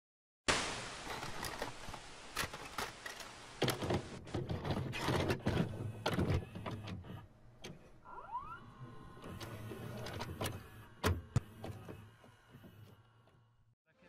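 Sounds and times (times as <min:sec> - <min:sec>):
hiss: 0:00.5 - 0:04.2
tape mechanism clunking and whirring: 0:01.2 - 0:13.5.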